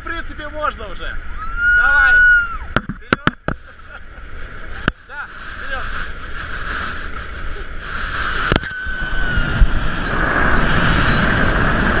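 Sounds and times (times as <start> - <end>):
light aircraft engine: 3.6 - 12.0
wind rushing: 4.5 - 12.0.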